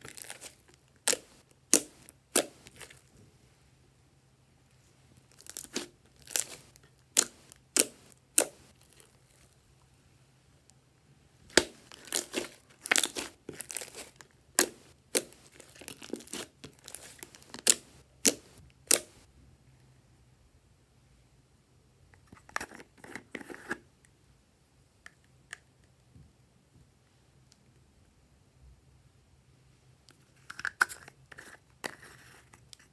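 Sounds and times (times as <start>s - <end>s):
slime popping and crackling: 0.0s - 3.1s, 5.3s - 9.5s, 11.5s - 19.2s.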